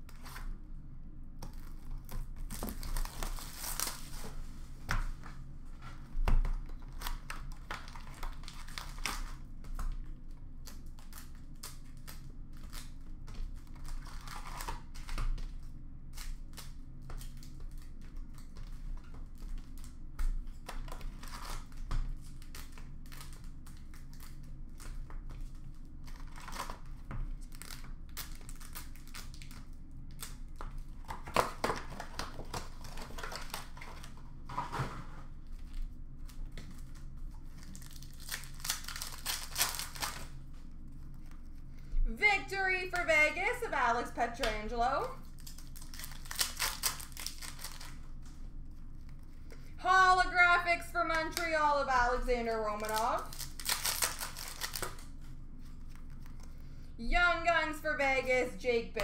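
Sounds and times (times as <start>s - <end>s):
card wrappers tearing and crinkling: 1.5s - 4.5s, 6.7s - 9.5s, 10.6s - 34.9s, 35.5s - 41.6s, 45.2s - 49.1s, 52.7s - 56.5s.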